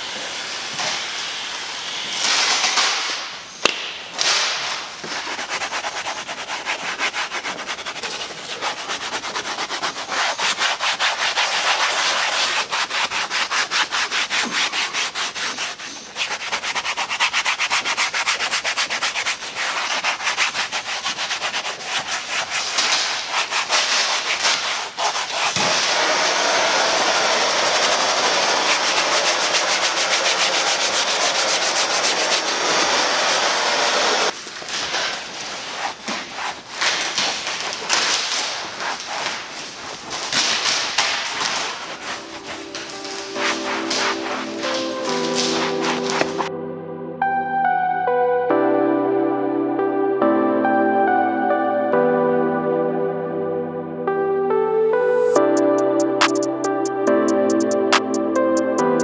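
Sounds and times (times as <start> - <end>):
hand scrubbing wet leather: 5.0 - 46.5.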